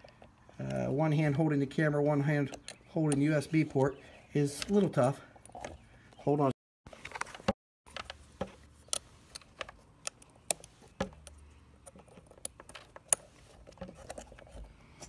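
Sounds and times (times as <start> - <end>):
phone rustling: 6.9 - 15.0
plastic parts clicking: 7.0 - 15.0.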